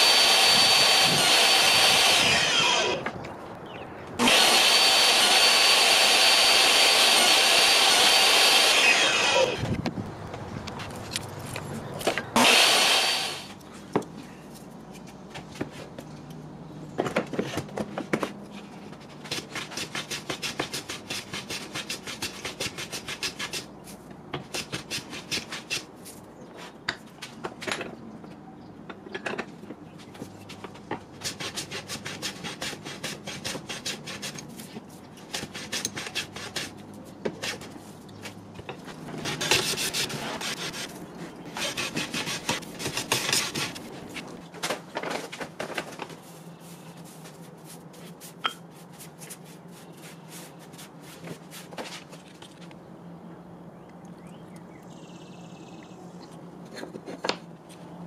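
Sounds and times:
hand plane shaving wood: 0:31.2 - 0:36.8, 0:39.0 - 0:44.4.

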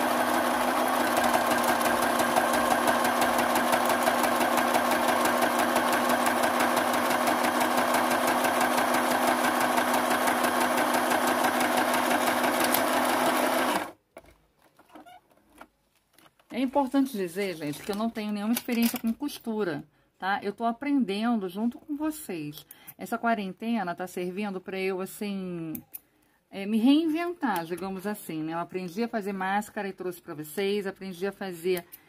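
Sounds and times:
sewing machine running: 0:00.0 - 0:14.0
faint handling noises: 0:14.1 - 0:19.2.

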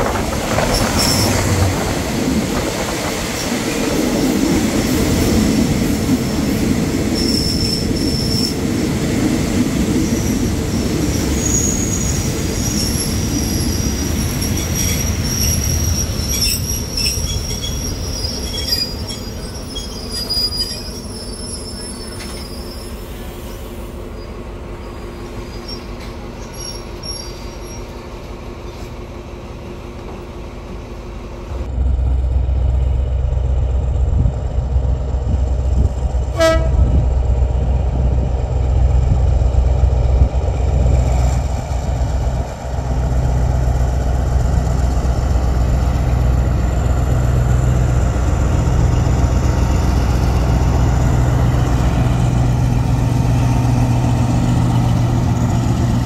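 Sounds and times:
diesel locomotive drone: 0:00.0 - 0:56.0
freight wagons rumbling on rails: 0:00.0 - 0:56.0
high-pitched wheel squeal: 0:11.4 - 0:23.0.

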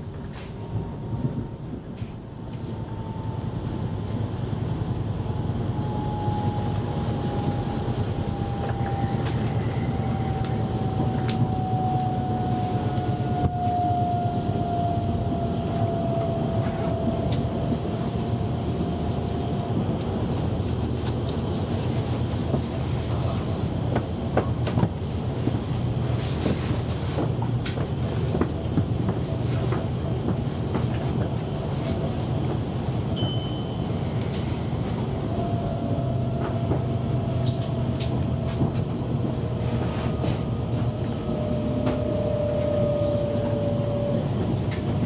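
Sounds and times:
train wheels rumbling on rail: 0:00.0 - 0:45.0
train clicks: 0:10.3 - 0:12.1, 0:26.3 - 0:33.3, 0:36.3 - 0:39.9, 0:40.8 - 0:45.0.

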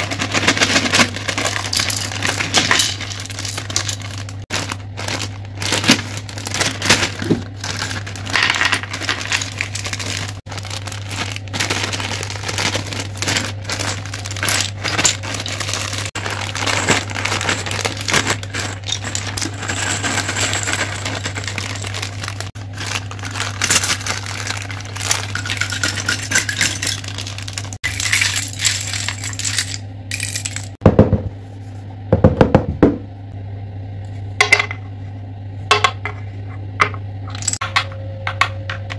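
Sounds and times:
wooden pieces clattering on table: 0:00.0 - 0:10.4, 0:11.2 - 0:30.8, 0:37.3 - 0:37.8
plastic bags crinkling: 0:00.0 - 0:30.8
low hum: 0:00.0 - 0:32.2.

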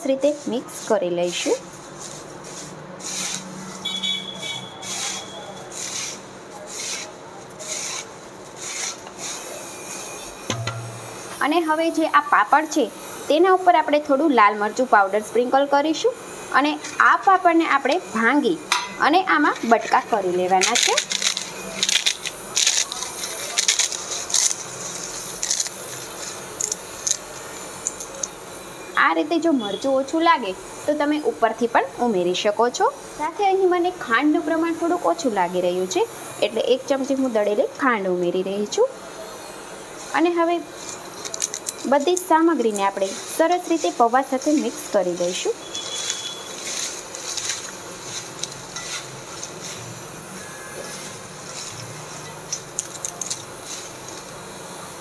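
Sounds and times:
spatula scraping dry flakes: 0:00.0 - 0:03.9, 0:04.5 - 0:10.4, 0:19.4 - 0:28.0, 0:40.2 - 0:49.9, 0:50.8 - 0:54.3
papads snapping and crackling: 0:19.5 - 0:28.4, 0:40.8 - 0:43.8, 0:45.7 - 0:49.9, 0:51.6 - 0:54.3.

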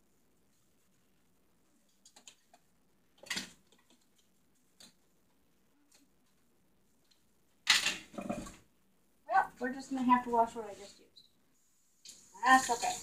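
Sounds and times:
kitchen items clattering: 0:07.7 - 0:08.6.

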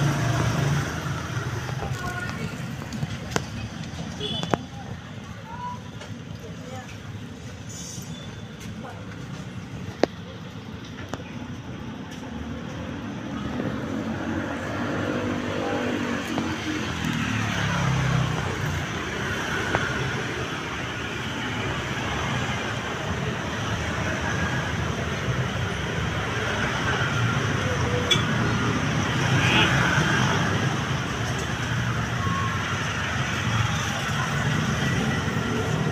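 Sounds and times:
road traffic noise: 0:00.0 - 0:35.9.

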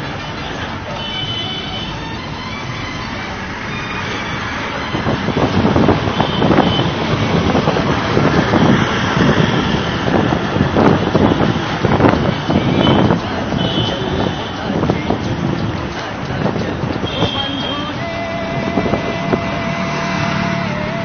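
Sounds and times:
van road and engine noise: 0:00.0 - 0:21.0
wind buffeting on microphone: 0:04.8 - 0:21.0.

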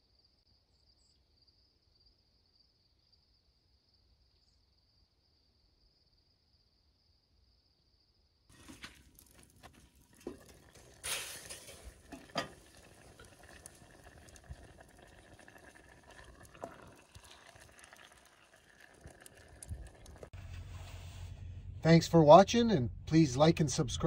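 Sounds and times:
chili bubbling in a pot: 0:08.5 - 0:20.4.

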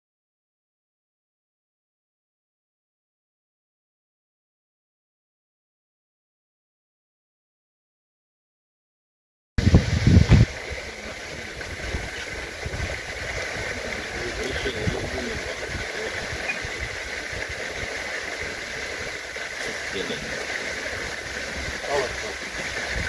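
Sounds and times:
low uneven rumble: 0:09.6 - 0:23.0.

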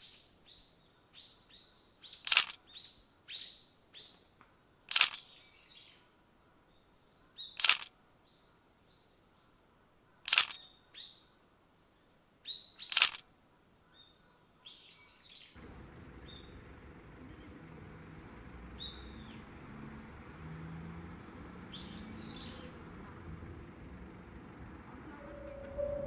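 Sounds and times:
bird chirps: 0:13.9 - 0:23.8
low rumble and hum: 0:15.6 - 0:20.3, 0:21.0 - 0:26.0
shrill bird calls: 0:18.8 - 0:19.6, 0:21.2 - 0:22.8.

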